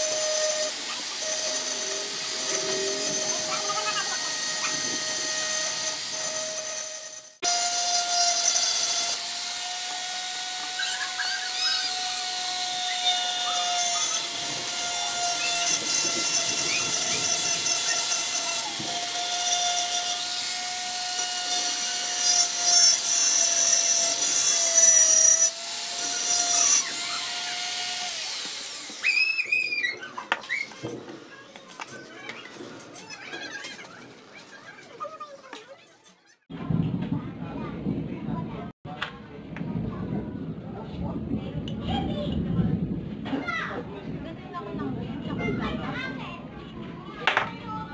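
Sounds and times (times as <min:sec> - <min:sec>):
bit grinding glass bottle: 0:00.0 - 0:30.9
rotary tool whining: 0:00.0 - 0:35.5.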